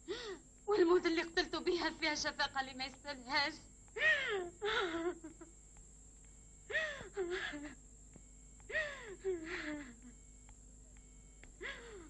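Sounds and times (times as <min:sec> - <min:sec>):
person sobbing: 0:04.0 - 0:05.5, 0:06.7 - 0:07.8, 0:08.7 - 0:10.2, 0:11.6 - 0:12.0.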